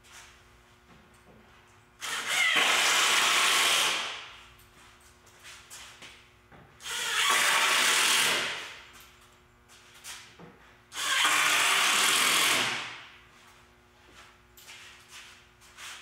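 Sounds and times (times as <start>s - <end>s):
impact driver driving screws: 2.0s - 4.1s, 6.8s - 8.6s, 11.0s - 12.8s.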